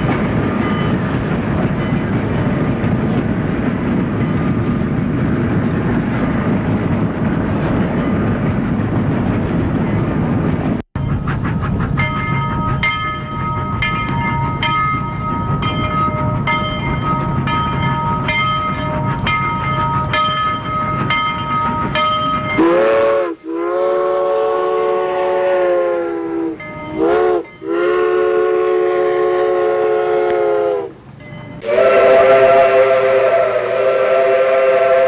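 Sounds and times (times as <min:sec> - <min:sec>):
locomotive bell ringing: 0:00.0 - 0:02.4, 0:04.1 - 0:05.0, 0:11.0 - 0:24.0, 0:26.5 - 0:28.3, 0:31.1 - 0:32.6
steam whistle blasts: 0:22.6 - 0:31.0, 0:31.6 - 0:35.0.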